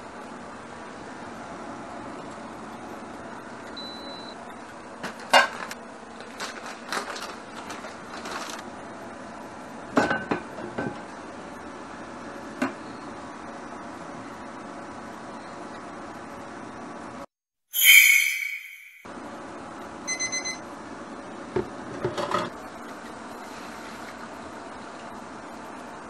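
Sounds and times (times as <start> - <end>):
plastic bag crinkling: 6.2 - 8.6
short high beep: 17.8 - 19.0.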